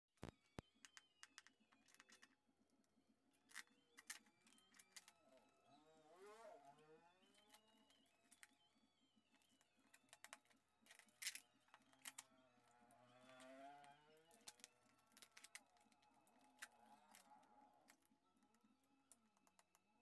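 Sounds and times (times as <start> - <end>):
packing tape crackles and clicks: 0.2 - 2.4, 3.4 - 5.5, 9.3 - 20.0.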